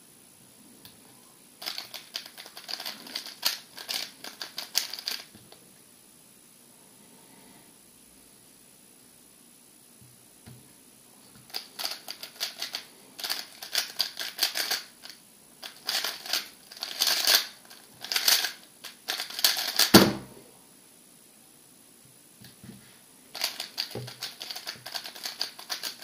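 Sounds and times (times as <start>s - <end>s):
puzzle cube clicking and rattling: 1.6s - 5.3s, 11.5s - 20.0s, 23.4s - 26.0s.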